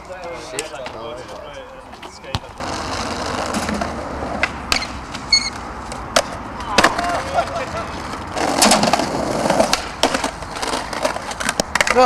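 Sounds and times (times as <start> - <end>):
skateboard wheels rolling: 0.0 - 12.0
skateboard scraping: 0.2 - 12.0
skateboard clacking on concrete: 2.6 - 12.0.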